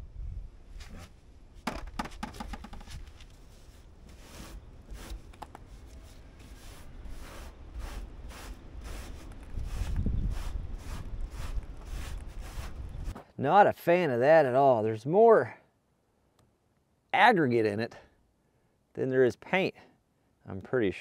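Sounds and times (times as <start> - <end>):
sharp clicks and knocks: 1.6 - 3.3
cloth rag wiping metal panel: 3.4 - 12.9.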